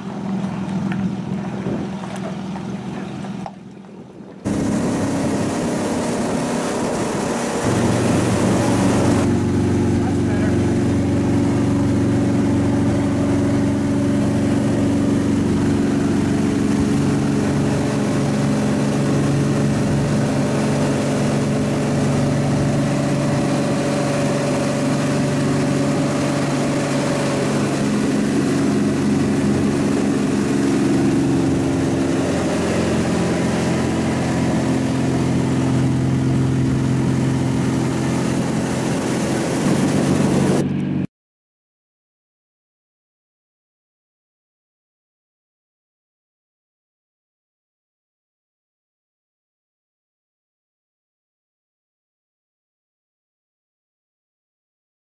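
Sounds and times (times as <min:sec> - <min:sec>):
motorboat engine drone: 0:00.0 - 0:41.1.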